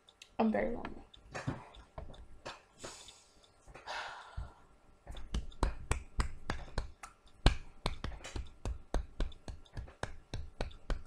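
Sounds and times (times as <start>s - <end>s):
person sighing: 3.8s - 4.6s.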